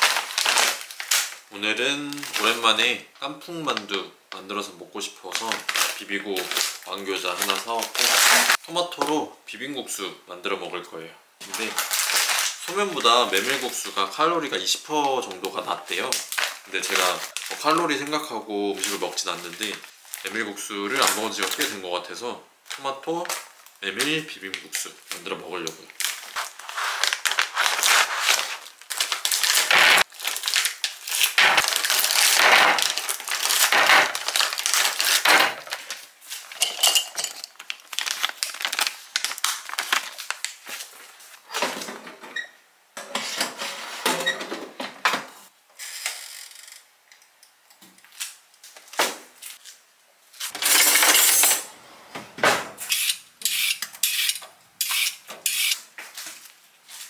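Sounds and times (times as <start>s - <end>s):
scraping and rustling: 26.2s - 28.7s
dishes and utensils clattering: 36.6s - 37.5s.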